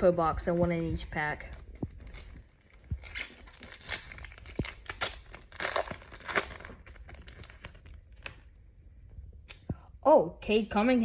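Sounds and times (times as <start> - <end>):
foil wrapper crinkling: 1.1 - 8.5.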